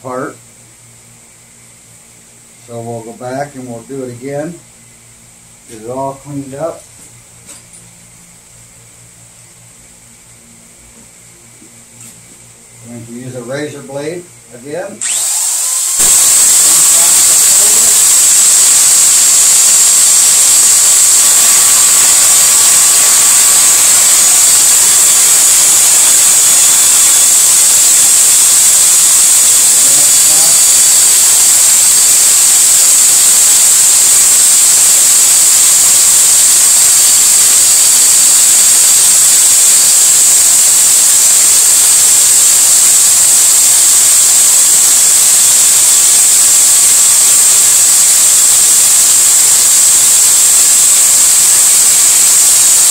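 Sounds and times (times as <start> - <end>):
electric drill running: 15.0 - 52.9.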